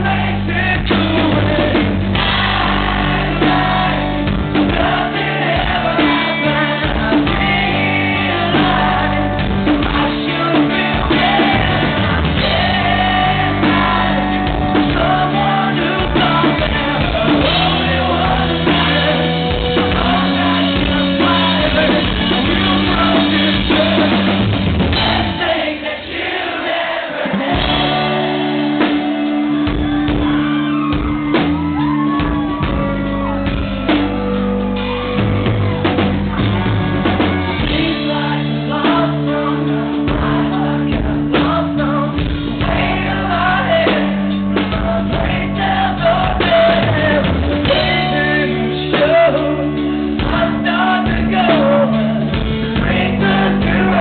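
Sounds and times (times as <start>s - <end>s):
man singing and shouting: 0.0s - 24.4s, 37.5s - 54.0s
live rock band playing: 0.0s - 54.0s.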